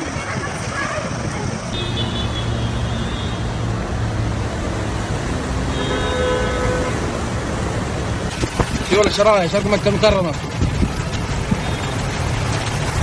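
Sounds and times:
traffic on flooded road: 0.0s - 13.0s
car horn: 1.8s - 3.7s, 5.4s - 7.3s.

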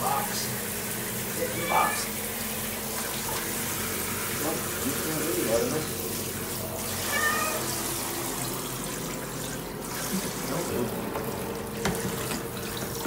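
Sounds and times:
shower water spraying: 0.0s - 13.0s
cat meowing: 1.4s - 2.2s, 7.0s - 7.8s.

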